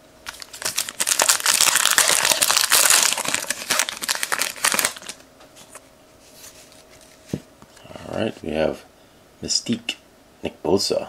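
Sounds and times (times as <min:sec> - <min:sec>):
foil wrapper crinkling: 0:00.2 - 0:05.8.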